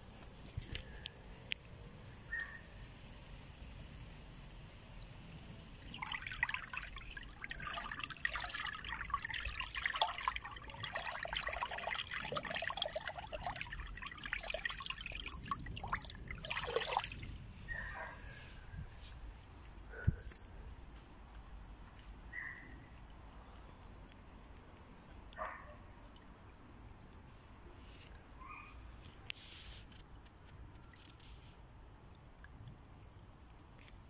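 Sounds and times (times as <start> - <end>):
hand splashing in stream: 5.8 - 17.3.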